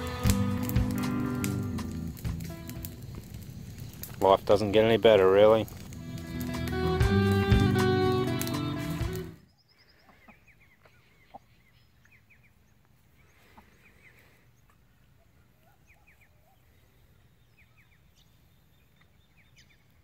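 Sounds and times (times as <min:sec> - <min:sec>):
small birds chirping: 0:03.7 - 0:20.0
chickens clucking: 0:10.1 - 0:11.7.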